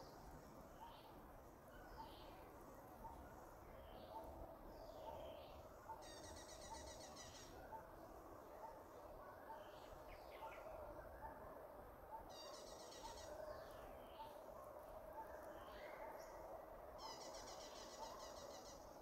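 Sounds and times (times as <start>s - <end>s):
insect hum: 0.0s - 19.0s.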